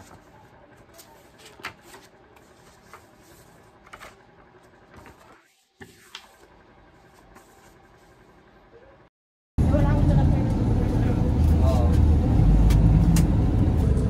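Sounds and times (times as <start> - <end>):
paper sheets rustling: 0.0 - 8.4.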